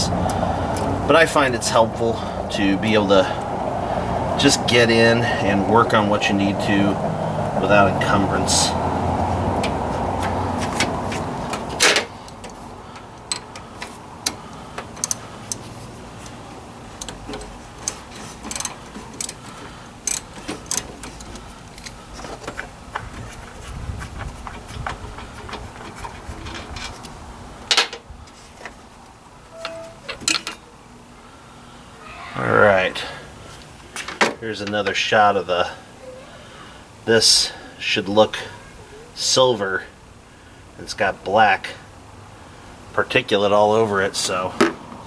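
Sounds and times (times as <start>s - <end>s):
metallic clicks of hand tools: 11.8s - 15.6s.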